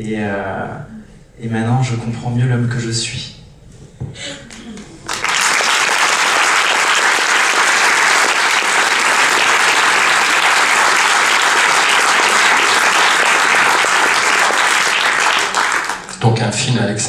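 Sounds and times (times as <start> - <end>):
audience applauding: 4.5 - 16.3.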